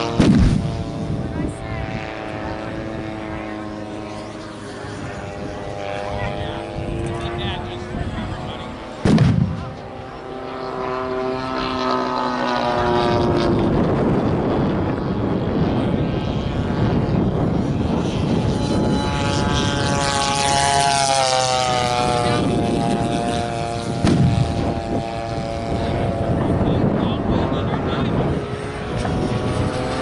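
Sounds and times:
model plane propeller engines passing: 0:00.0 - 0:30.0
loud pyrotechnic bang: 0:00.2 - 0:00.7, 0:09.0 - 0:09.7, 0:24.0 - 0:24.4.

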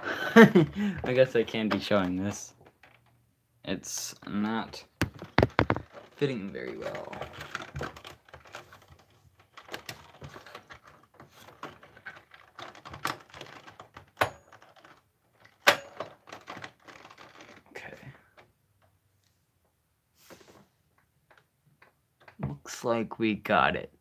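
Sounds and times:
speaker knocking in plastic housing: 0:05.0 - 0:06.1.

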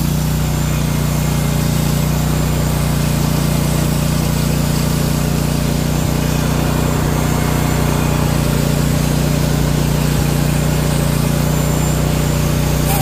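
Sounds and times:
digging chain cutting dirt: 0:00.0 - 0:13.0
small engine running under load: 0:00.0 - 0:13.0.

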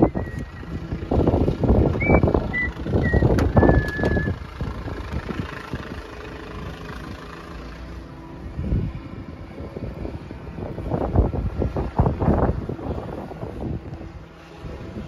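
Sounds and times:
steady wind: 0:00.0 - 0:15.0
short high squeaks: 0:02.0 - 0:04.4.

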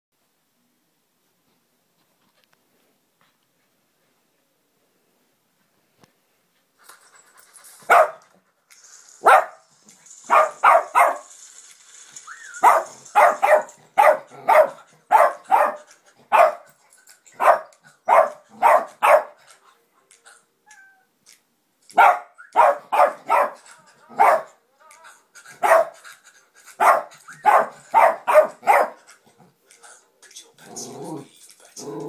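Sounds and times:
small dog barking: 0:07.9 - 0:08.2, 0:09.2 - 0:09.6, 0:10.3 - 0:11.3, 0:12.6 - 0:16.7, 0:17.4 - 0:19.4, 0:21.9 - 0:24.6, 0:25.6 - 0:26.0, 0:26.8 - 0:29.0.

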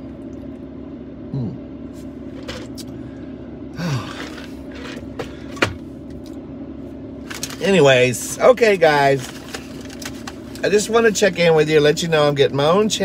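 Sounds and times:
car engine hum: 0:00.0 - 0:13.0
man murmuring: 0:01.3 - 0:01.6.

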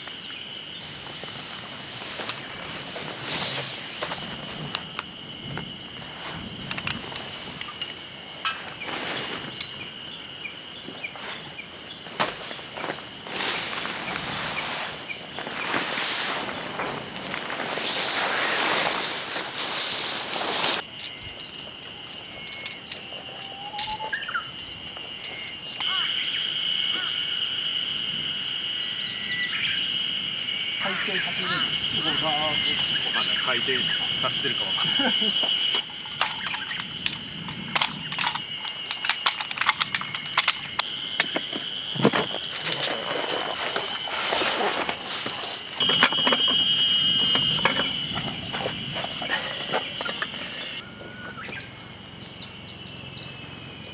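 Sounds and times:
steady high whine: 0:00.0 - 0:53.9
tent fabric rustling and crackling: 0:00.8 - 0:21.6, 0:35.9 - 0:50.8
metal poles clicking and clacking: 0:35.8 - 0:41.3.

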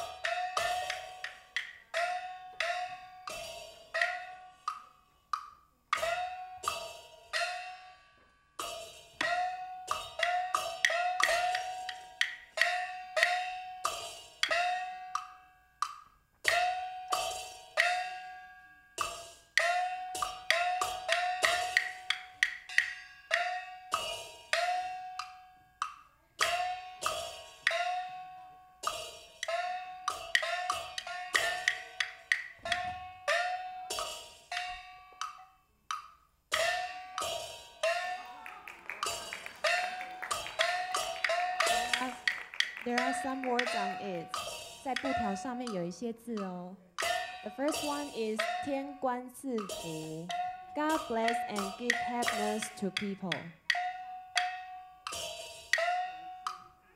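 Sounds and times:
sharp ringing percussion strikes: 0:00.0 - 0:04.7, 0:06.0 - 0:15.5, 0:16.5 - 0:25.6, 0:36.6 - 0:45.9, 0:47.0 - 0:56.8
wooden clapper clicks: 0:38.4 - 0:45.8.

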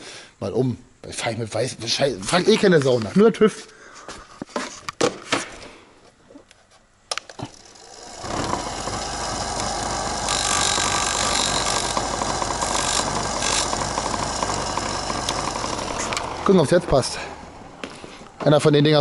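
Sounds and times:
grinding metal: 0:07.4 - 0:17.9
bench grinder running: 0:07.4 - 0:18.4.

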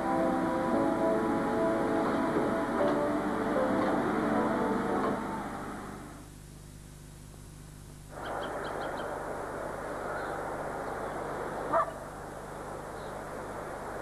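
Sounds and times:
outdoor background noise: 0:00.0 - 0:14.0
bird chirping: 0:08.2 - 0:09.2.

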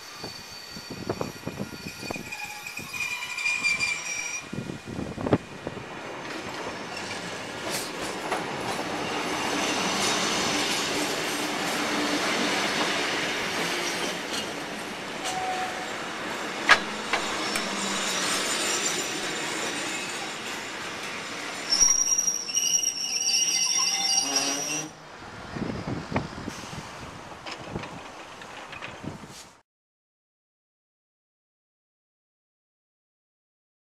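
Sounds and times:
high steady brake squeal: 0:00.0 - 0:04.6, 0:21.6 - 0:25.0
train running on rails: 0:00.0 - 0:29.6.

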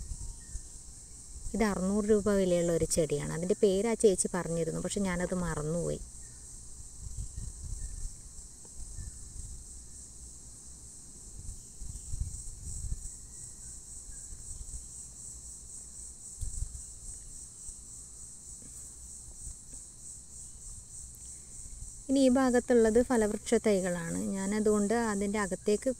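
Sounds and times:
crickets shrilling: 0:00.0 - 0:25.9
low rumbles on microphone: 0:06.9 - 0:08.2, 0:11.4 - 0:13.1.

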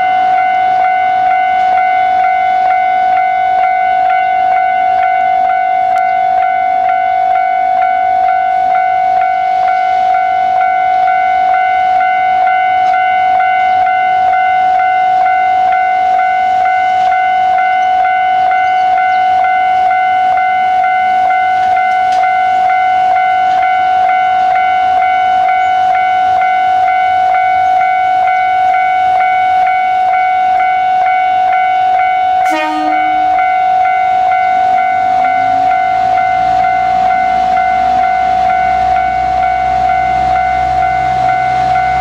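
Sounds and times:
level-crossing alarm bell: 0:00.0 - 0:42.0
train horn toot: 0:32.4 - 0:33.6.

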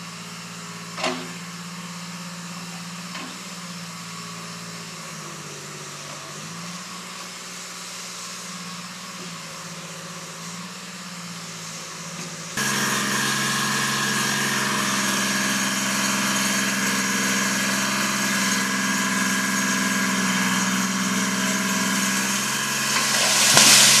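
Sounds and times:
backhoe engine running: 0:00.0 - 0:24.0
tree crashing down: 0:22.5 - 0:24.0.

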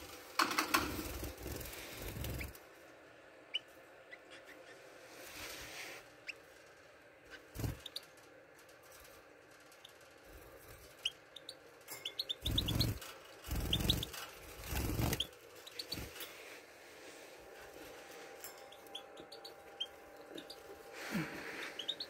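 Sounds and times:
finches chirping: 0:03.5 - 0:04.8, 0:07.3 - 0:08.1, 0:10.9 - 0:16.2, 0:18.6 - 0:22.0.

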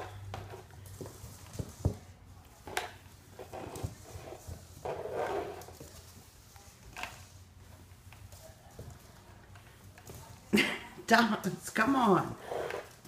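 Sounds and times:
mop scraping across wooden floor: 0:00.0 - 0:13.0.

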